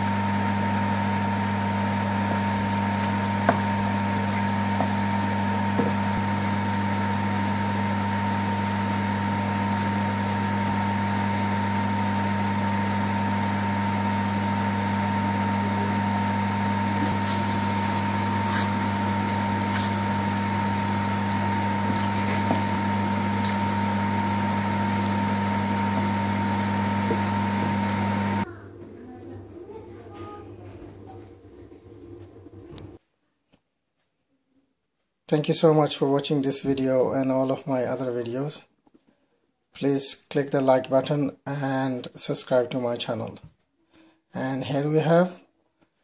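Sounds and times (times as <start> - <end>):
machine hum with hiss: 0.0 - 33.0.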